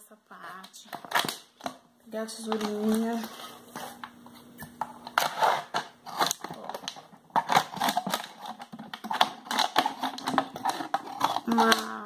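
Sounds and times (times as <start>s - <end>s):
plastic crackling: 0.6s - 12.0s
scissors cutting plastic bottle: 4.6s - 12.0s.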